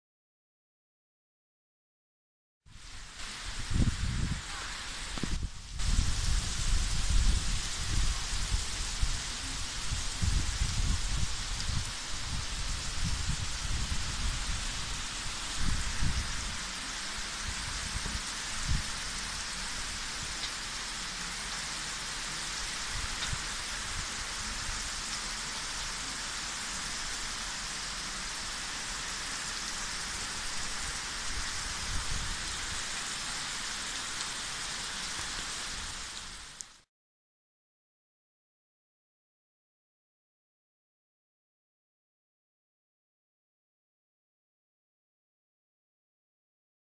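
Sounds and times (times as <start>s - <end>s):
heavy rain hissing: 2.7s - 36.9s.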